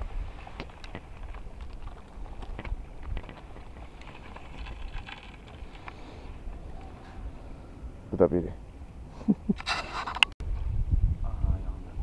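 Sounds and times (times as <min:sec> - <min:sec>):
wind buffeting microphone: 0:10.4 - 0:12.0.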